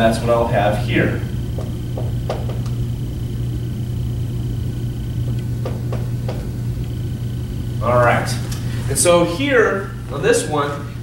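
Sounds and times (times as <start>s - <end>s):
faint high whine: 0.0s - 11.0s
low electrical hum: 0.0s - 11.0s
marker tapping on whiteboard: 1.6s - 2.7s.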